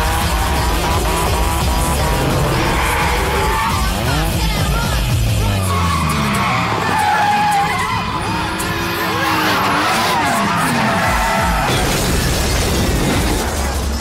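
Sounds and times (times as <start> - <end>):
car engines revving: 0.0 - 14.0
loud film music: 0.0 - 14.0
tyres squealing: 0.1 - 11.8.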